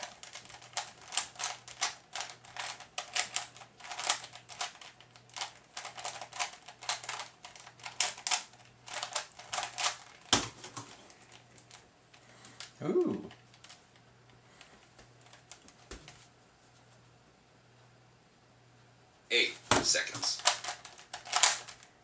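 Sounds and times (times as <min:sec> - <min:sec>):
plastic puzzle cube clicking: 0:00.0 - 0:11.8, 0:20.2 - 0:21.9.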